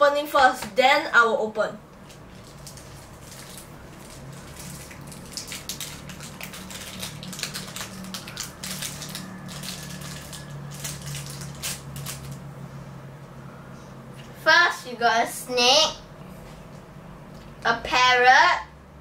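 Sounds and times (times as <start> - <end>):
plastic wrapper crinkling and tearing: 2.0 - 12.4.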